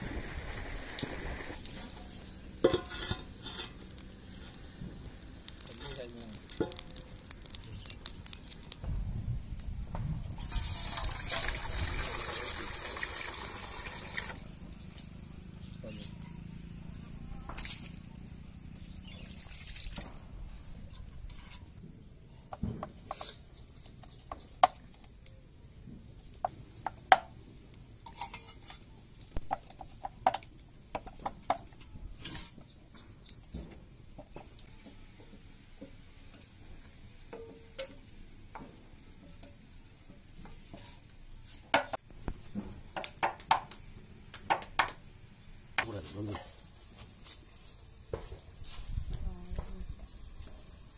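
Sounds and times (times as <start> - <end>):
metal utensils clinking on plates: 2.6 - 3.7.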